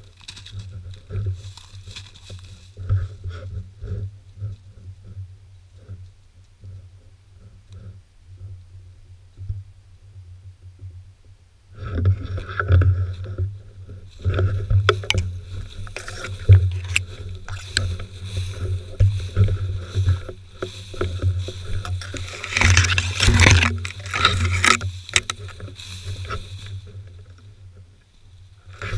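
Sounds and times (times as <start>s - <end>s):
dry grass swishing against legs: 0.0s - 3.4s, 14.1s - 28.9s
sharp ticks of grass stems: 0.0s - 3.5s, 11.9s - 28.9s
steady low rumble: 12.8s - 28.9s.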